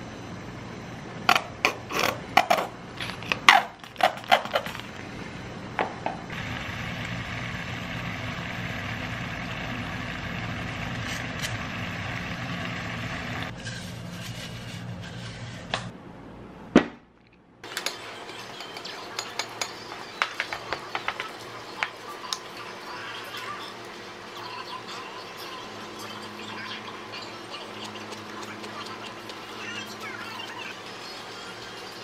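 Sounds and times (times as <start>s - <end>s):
stew simmering on gas burner: 6.3s - 14.0s.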